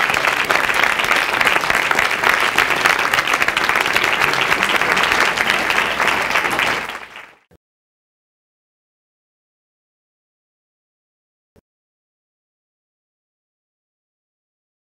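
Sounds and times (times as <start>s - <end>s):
crowd clapping: 0.0s - 7.5s.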